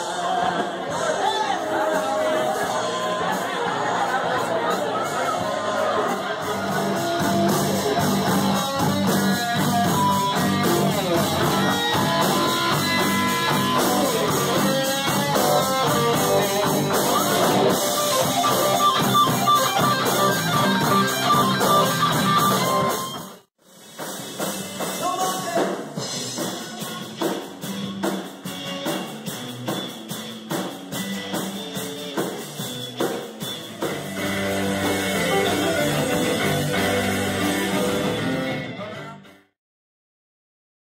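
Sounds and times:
electric guitars: 0.0s - 25.0s, 26.0s - 39.5s
drum kit: 0.0s - 39.5s.

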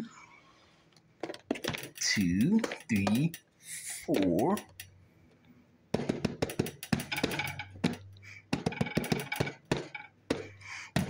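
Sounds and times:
fingers drumming on plastic lid: 6.0s - 11.0s.

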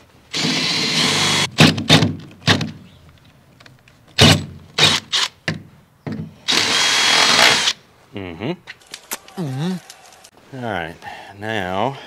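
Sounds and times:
cordless drill running: 0.3s - 1.5s, 6.5s - 7.8s.

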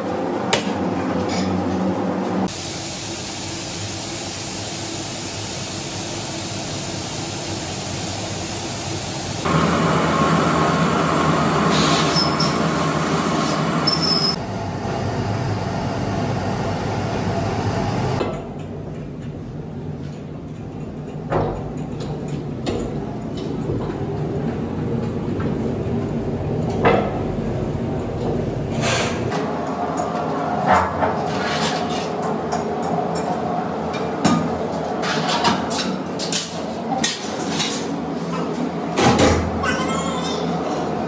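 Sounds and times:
workshop machinery hum: 0.0s - 41.0s
short high squeaks: 11.9s - 12.6s, 13.8s - 14.4s, 39.6s - 40.6s.

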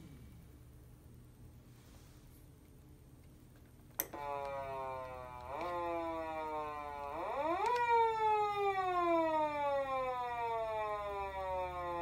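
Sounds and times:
police siren wailing: 4.1s - 12.0s.

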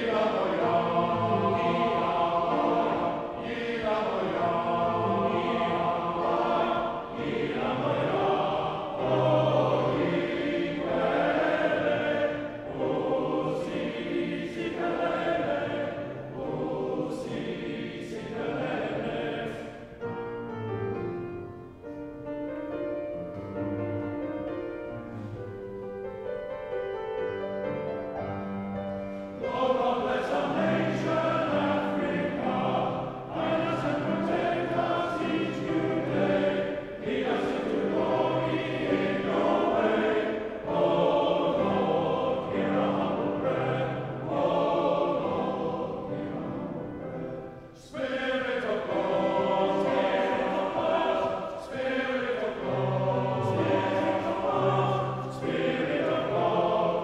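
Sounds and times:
male choir singing in harmony: 0.0s - 21.4s, 23.7s - 57.0s
piano accompaniment: 0.0s - 57.0s.

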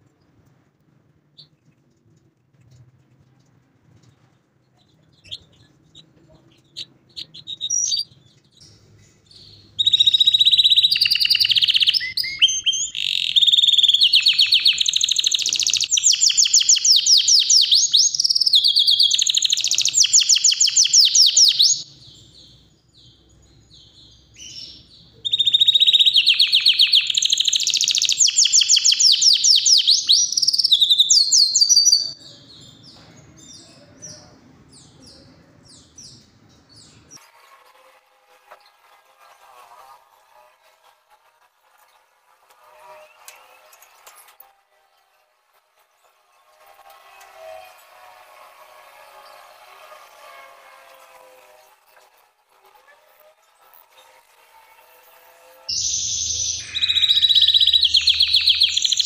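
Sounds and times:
canary singing trills: 4.7s - 37.2s, 55.7s - 59.0s
short bird chirps: 9.2s - 21.8s, 23.8s - 32.2s, 55.7s - 59.0s.

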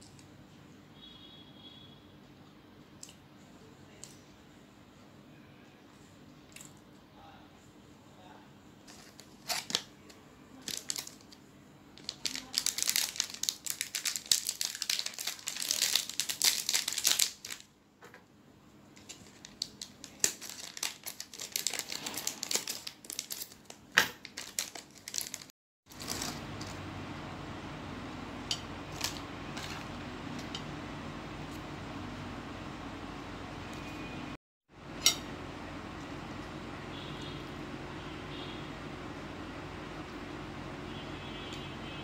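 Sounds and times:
plastic wrapper crinkling: 8.9s - 9.9s, 10.5s - 17.7s, 19.0s - 26.9s, 28.9s - 30.0s
steady low hum: 25.9s - 42.0s.

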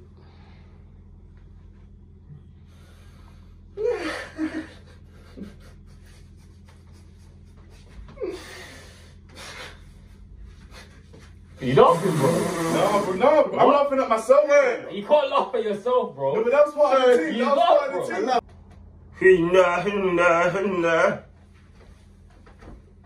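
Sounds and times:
steady low hum: 0.0s - 23.0s
men stifling laughter: 3.8s - 8.4s.

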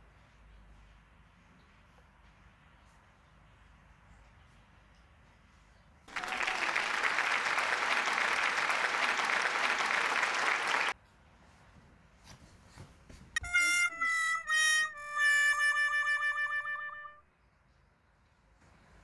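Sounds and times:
crowd applause: 6.1s - 11.0s.

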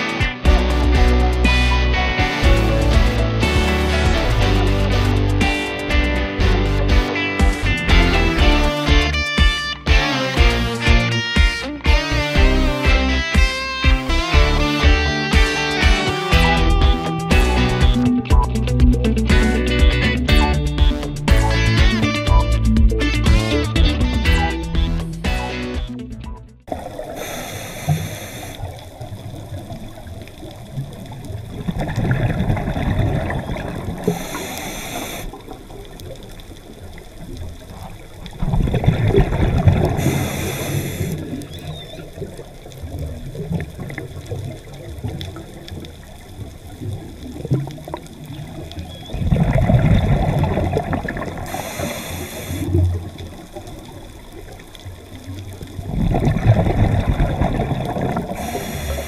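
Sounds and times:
exhaled bubbles rushing: 2.2s - 5.5s, 26.6s - 59.0s
regulator hiss on inhale: 27.0s - 28.9s, 34.0s - 35.7s, 39.9s - 41.7s, 51.4s - 53.3s, 58.2s - 59.0s.

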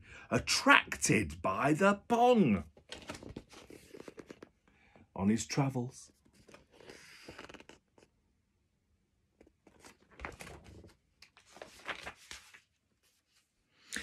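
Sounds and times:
book pages rustling: 2.7s - 4.6s, 6.1s - 8.1s, 9.4s - 13.5s.

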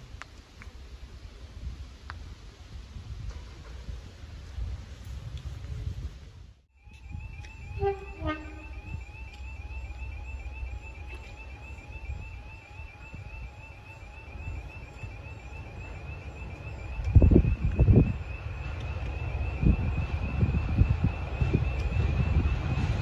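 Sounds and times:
diesel locomotive engines rumbling: 0.0s - 23.0s
two-note locomotive horn: 6.8s - 9.6s.

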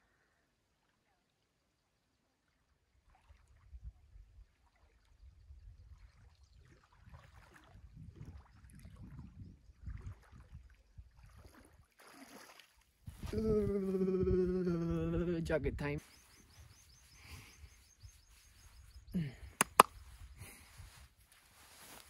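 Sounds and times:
wind rumble on microphone: 3.4s - 11.8s, 13.0s - 19.2s
water splashing from swimming: 6.6s - 9.2s, 9.8s - 13.0s.

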